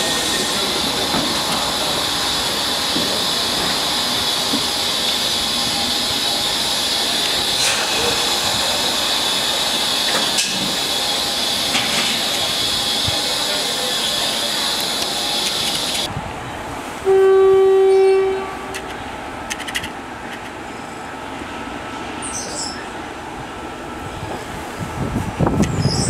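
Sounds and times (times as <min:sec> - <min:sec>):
steam hissing from locomotive: 0:00.0 - 0:16.1.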